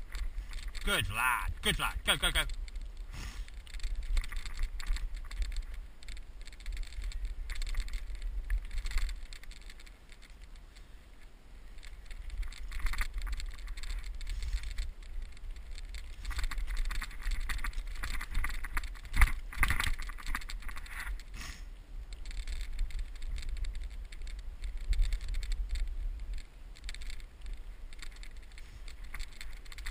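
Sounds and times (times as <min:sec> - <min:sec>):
steady low rumble: 0:00.0 - 0:19.5
bike frame and chain rattling: 0:00.0 - 0:21.4, 0:22.2 - 0:29.9
bike tyres crunching on dirt: 0:00.0 - 0:29.9.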